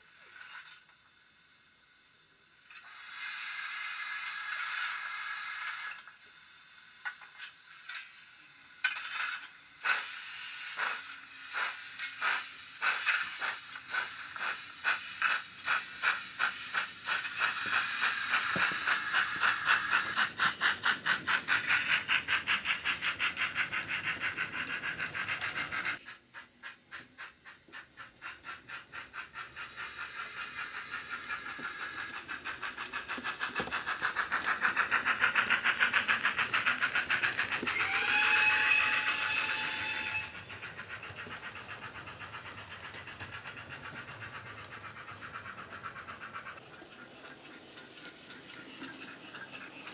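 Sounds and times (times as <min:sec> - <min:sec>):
steam locomotive exhaust beats: 0:00.0 - 0:49.9
locomotive whistle: 0:37.7 - 0:40.5.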